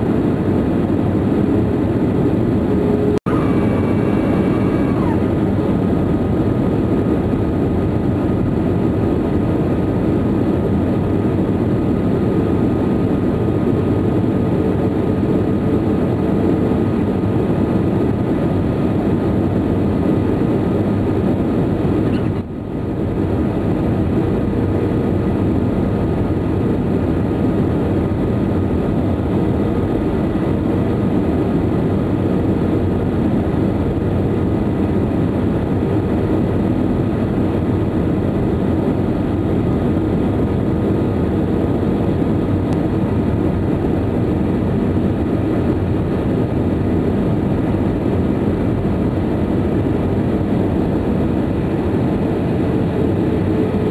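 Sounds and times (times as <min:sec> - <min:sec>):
jet engine roar in cabin: 0:00.0 - 0:53.9
high whine sliding down: 0:01.4 - 0:06.6.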